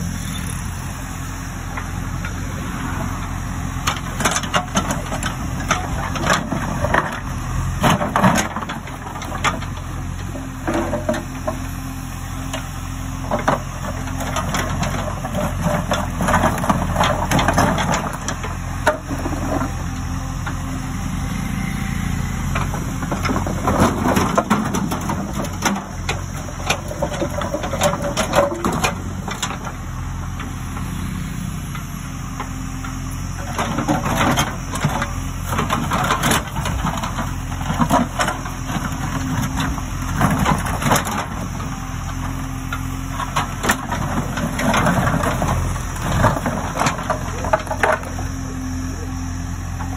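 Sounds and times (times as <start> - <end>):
diesel engine running: 0.0 - 49.9.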